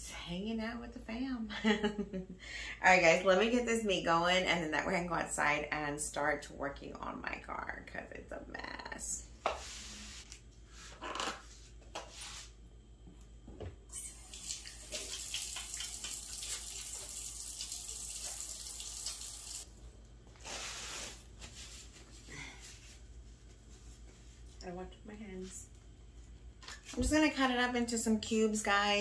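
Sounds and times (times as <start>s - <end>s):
faucet water splashing into sink: 13.9s - 19.7s.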